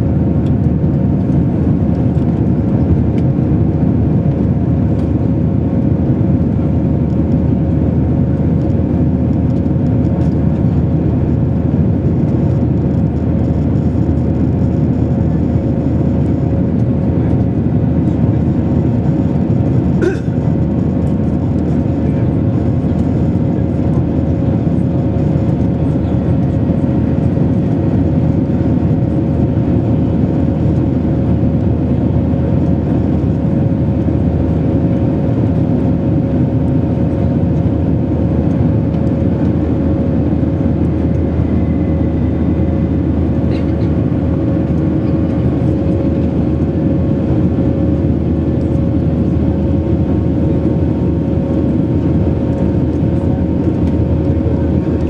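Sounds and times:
jet engines and rushing airflow: 0:00.0 - 0:55.0
steady hum tone: 0:37.8 - 0:55.0.

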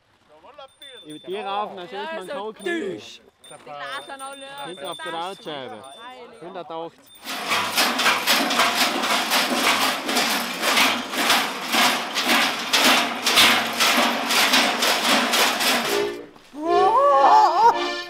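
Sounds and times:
large bells clanging: 0:03.5 - 0:06.0, 0:07.1 - 0:16.4.

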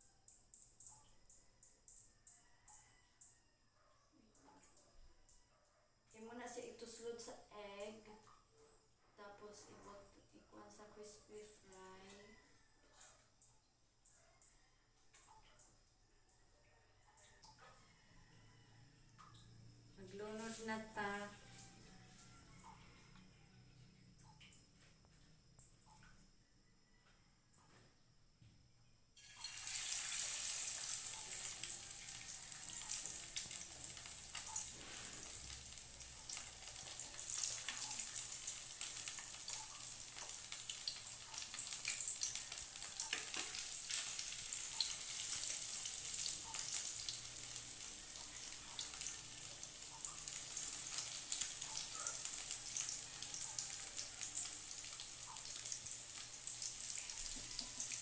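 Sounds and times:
food deep-frying in oil: 0:17.3 - 0:23.2, 0:29.2 - 0:58.0.

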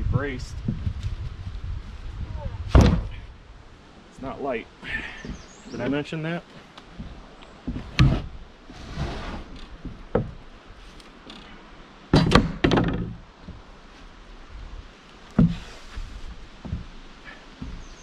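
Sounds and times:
wooden log knocks and thumps: 0:02.6 - 0:03.3, 0:06.9 - 0:08.4, 0:09.6 - 0:10.5, 0:12.1 - 0:13.7, 0:15.3 - 0:18.0.

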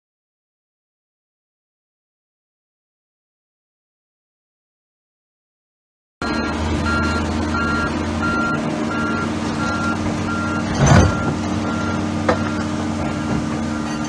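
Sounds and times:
backup alarm beeping: 0:06.2 - 0:14.0
diesel excavator engine running: 0:06.2 - 0:14.0.

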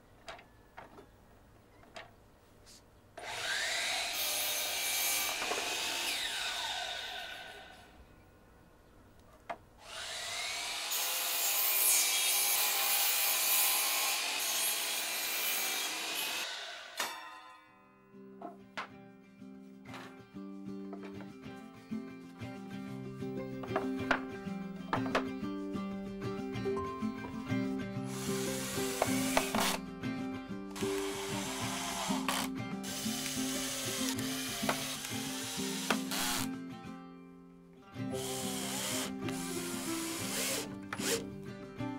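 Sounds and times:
saw cutting wooden board: 0:03.2 - 0:07.8, 0:09.8 - 0:17.1, 0:28.1 - 0:29.8, 0:30.8 - 0:36.6, 0:38.1 - 0:41.2
soft background music: 0:17.7 - 0:41.9
cordless drill driving screws: 0:28.1 - 0:29.8, 0:30.8 - 0:36.6, 0:38.2 - 0:41.2.

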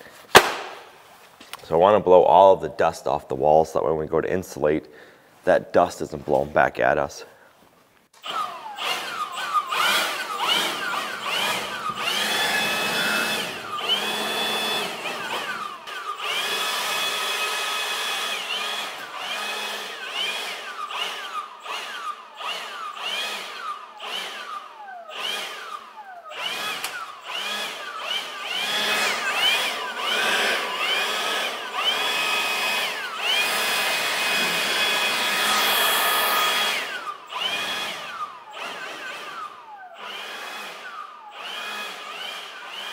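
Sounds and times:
leaf blower revving: 0:08.2 - 0:42.9.

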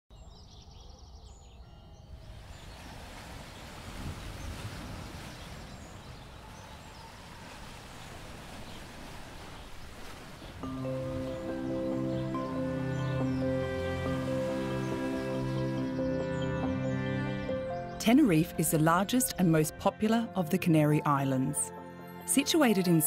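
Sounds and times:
birds chirping: 0:00.1 - 0:21.7
surf breaking on rocky shore: 0:02.5 - 0:11.7.

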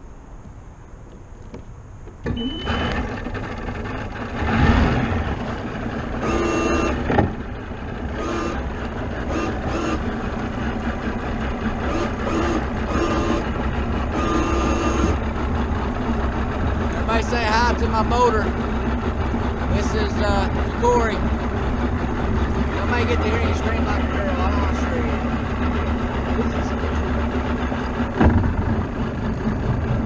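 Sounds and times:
short tonal beeps: 0:02.3 - 0:03.0, 0:06.2 - 0:07.0, 0:14.1 - 0:15.2
outboard motor running: 0:02.4 - 0:30.0.

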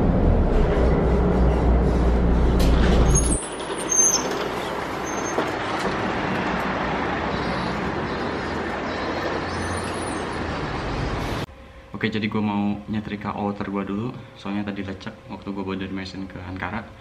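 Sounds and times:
bus engine rumble: 0:00.0 - 0:11.5
street traffic: 0:00.0 - 0:11.5
high squeaks: 0:02.7 - 0:05.8.

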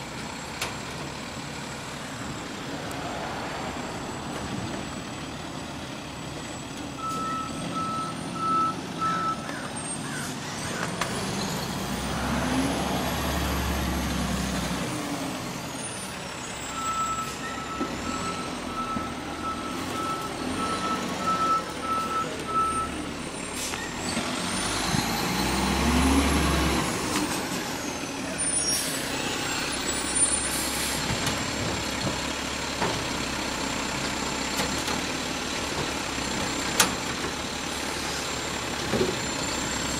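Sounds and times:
backup alarm beeps: 0:07.0 - 0:09.4, 0:16.7 - 0:23.0
truck engine revving with whine: 0:07.1 - 0:31.9.

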